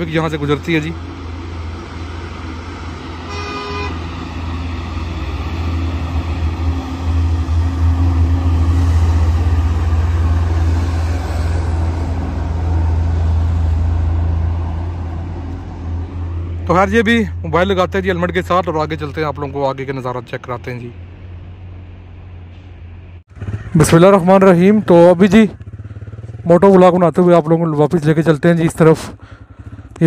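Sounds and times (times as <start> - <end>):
heavy vehicle engine rumble: 0.0 - 26.7, 29.1 - 30.0
vehicle horn toot: 3.2 - 4.1.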